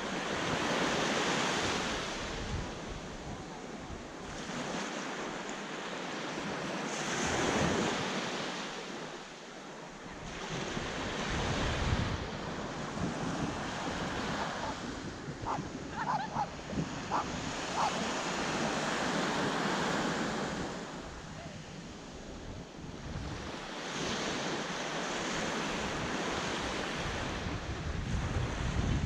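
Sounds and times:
small waves washing on shore: 0.0 - 29.0
wind buffeting microphone: 10.6 - 19.0, 26.0 - 29.0.

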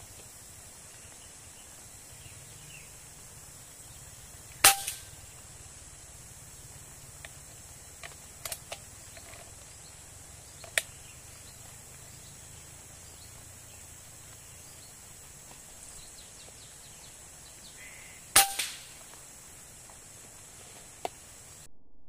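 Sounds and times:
air rifle shot: 4.6 - 5.2, 18.3 - 19.0.

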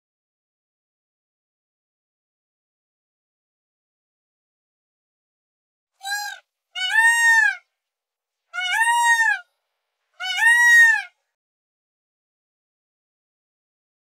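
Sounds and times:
peacock calling: 6.0 - 7.6, 8.6 - 9.5, 10.2 - 11.2.

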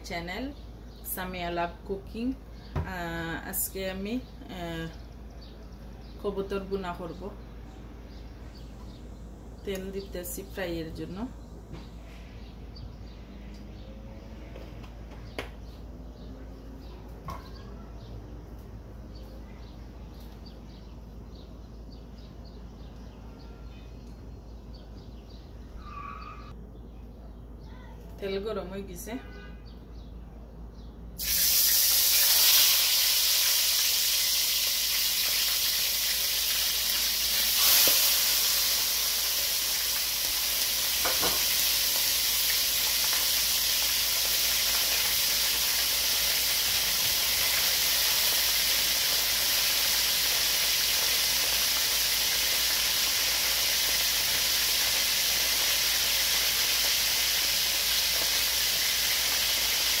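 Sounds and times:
meat sizzling in hot oil: 31.2 - 60.0.

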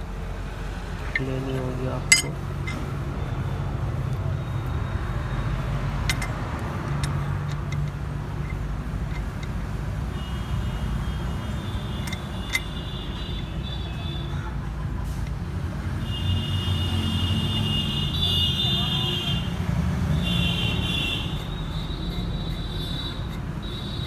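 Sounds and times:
motor vehicles rumbling: 0.0 - 24.0
light metallic clicks: 6.0 - 9.6, 11.9 - 12.9.

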